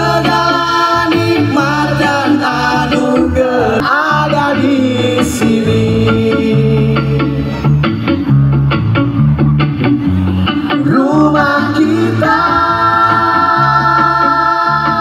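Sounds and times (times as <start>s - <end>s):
voices singing: 0.0s - 7.6s, 10.6s - 15.0s
bass guitar: 0.0s - 15.0s
electric guitar: 0.0s - 15.0s.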